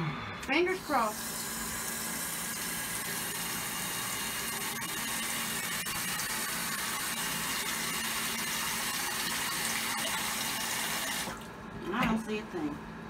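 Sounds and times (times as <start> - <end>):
faucet water running into sink: 1.1 - 11.4.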